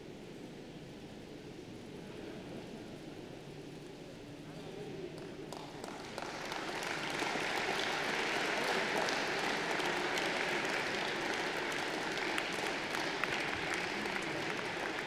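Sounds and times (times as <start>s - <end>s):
crowd applauding: 5.5s - 15.0s.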